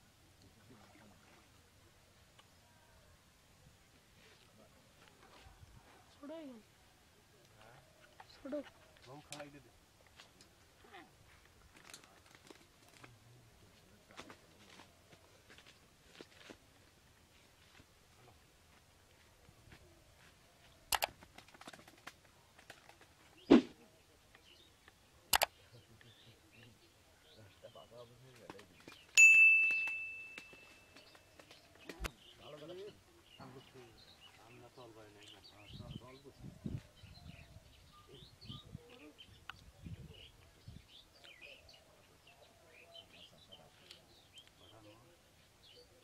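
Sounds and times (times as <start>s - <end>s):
small birds chirping: 0.4s - 16.5s, 17.3s - 46.0s
sharp clicks: 20.9s - 22.2s, 24.8s - 25.6s
loud thump: 23.5s - 23.8s.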